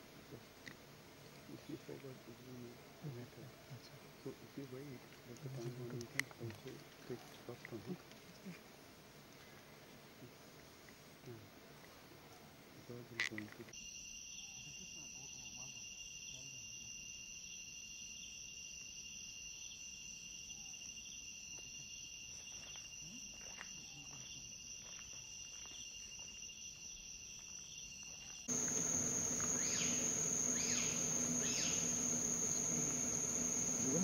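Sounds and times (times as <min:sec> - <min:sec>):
daytime insect chorus: 0:00.2 - 0:12.1, 0:12.8 - 0:34.0
crickets trilling: 0:13.3 - 0:34.0
pulsing insect trill: 0:13.8 - 0:34.0.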